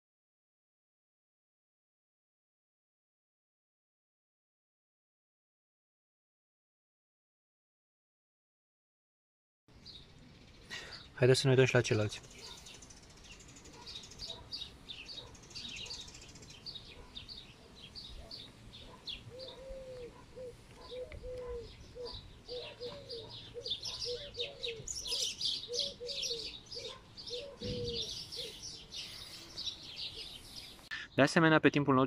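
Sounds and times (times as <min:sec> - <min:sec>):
small birds chirping: 0:09.7 - 0:31.8
low-pitched bird calling: 0:18.2 - 0:31.1.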